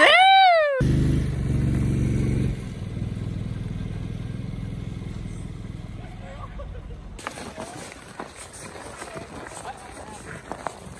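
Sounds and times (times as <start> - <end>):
small vehicle engine running: 0.8 - 7.1.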